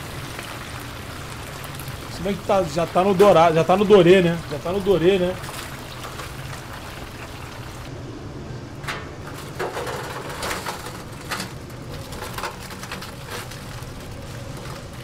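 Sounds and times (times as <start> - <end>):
kitchen background noise: 0.0 - 7.9, 8.6 - 15.0
fried chicken rattling into metal tray: 8.9 - 15.0.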